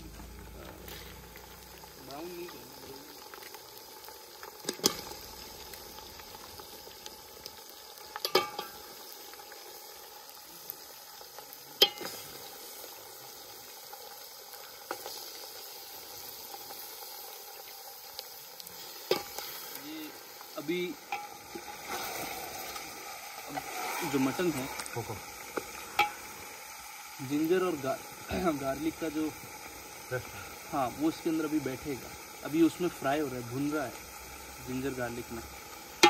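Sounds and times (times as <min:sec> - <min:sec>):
meat sizzling in a pot: 0:00.0 - 0:36.0.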